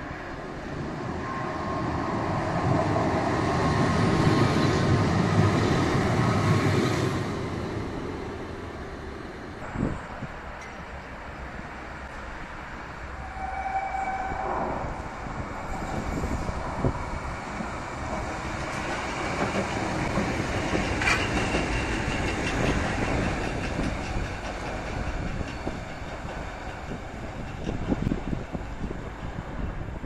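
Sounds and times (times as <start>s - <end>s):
tram passing on rails: 0.0s - 30.0s
tram wheels clicking: 15.4s - 30.0s.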